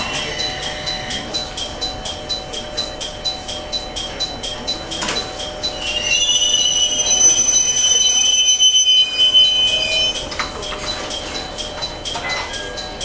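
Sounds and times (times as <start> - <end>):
train brakes squealing: 0.0 - 1.4, 5.5 - 10.3.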